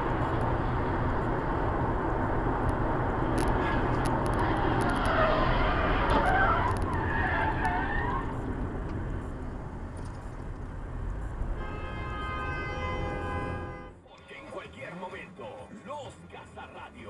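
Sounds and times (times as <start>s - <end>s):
car road and engine noise: 0.0s - 17.0s
tyres squealing: 3.5s - 8.4s.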